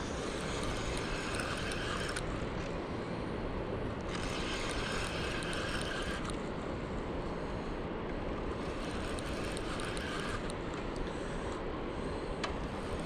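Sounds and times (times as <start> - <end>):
fishing reel whirring and ticking: 0.0 - 2.4, 4.0 - 6.4, 8.2 - 11.6, 12.6 - 13.0
wind: 0.0 - 13.0.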